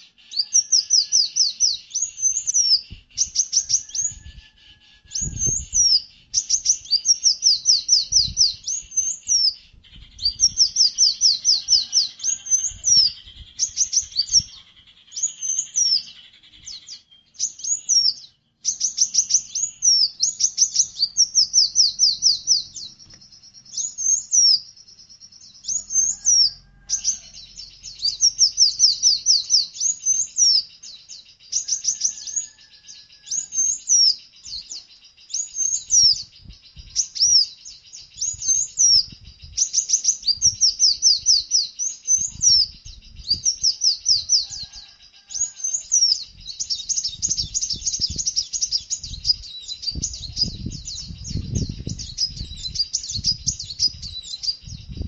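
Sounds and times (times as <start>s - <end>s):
songbird singing: 0.0s - 55.0s.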